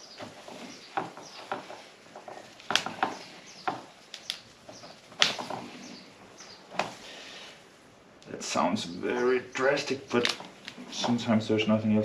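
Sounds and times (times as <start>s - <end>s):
roots crackling and snapping: 2.3s - 5.7s, 10.1s - 11.3s.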